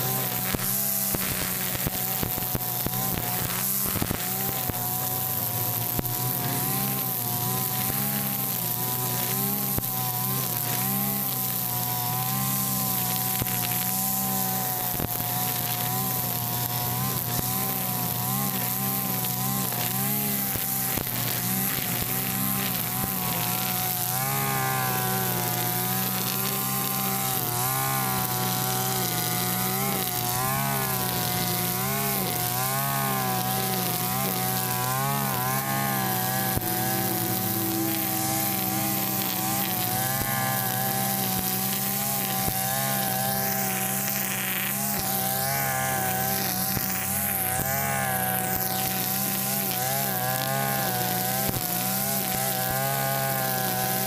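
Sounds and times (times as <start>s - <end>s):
brush cutter engine running fast: 0.0s - 54.0s
trimmer line cutting grass: 0.0s - 54.0s.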